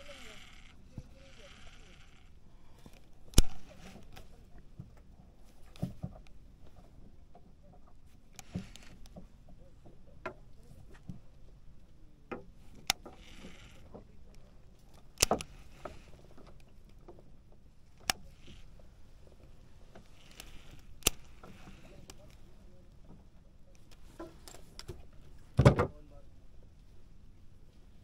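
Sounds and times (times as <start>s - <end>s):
fishing reel clicking: 0.0s - 4.2s, 12.8s - 14.0s, 20.0s - 22.4s
faint low background hum: 0.0s - 28.0s.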